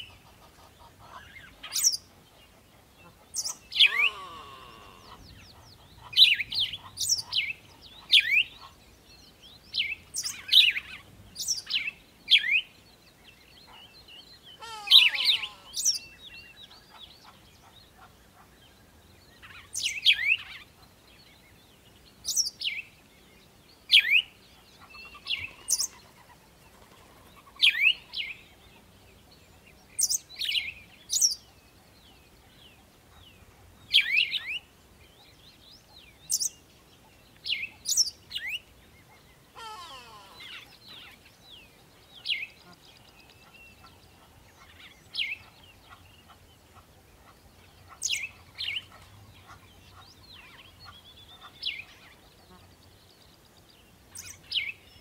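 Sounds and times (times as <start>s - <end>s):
bird chirping: 0.0s - 55.0s.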